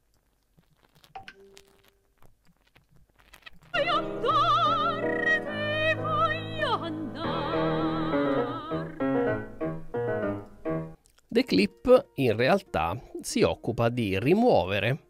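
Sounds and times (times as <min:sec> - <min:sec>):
opera singer with vibrato: 0:03.8 - 0:09.0
musical accompaniment: 0:03.8 - 0:14.1.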